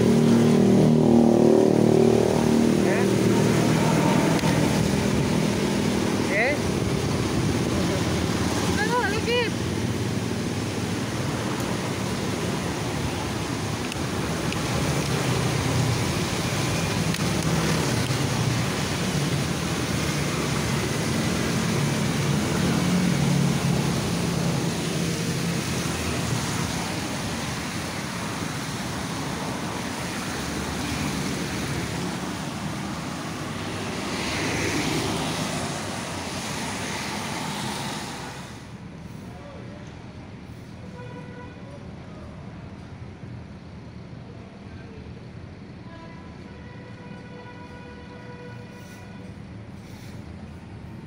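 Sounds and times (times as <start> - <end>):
passing vehicles whooshing: 0.0 - 39.5.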